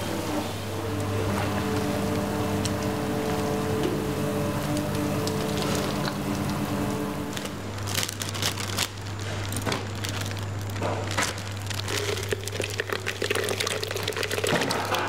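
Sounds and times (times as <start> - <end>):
mechanical kitchen hum: 0.0 - 15.0
plastic bag crinkling: 1.2 - 15.0.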